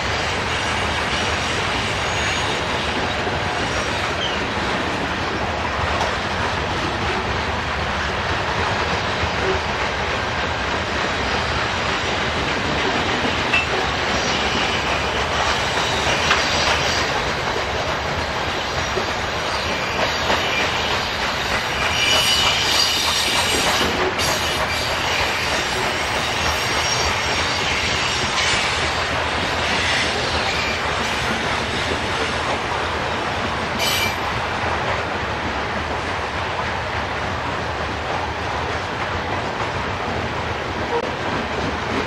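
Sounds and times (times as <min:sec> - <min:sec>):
train wheels rumbling on rails: 0:00.0 - 0:42.0
high wheel squeal: 0:01.7 - 0:04.4, 0:13.5 - 0:17.1, 0:19.4 - 0:28.8
clicking over rail joints: 0:11.7 - 0:14.3.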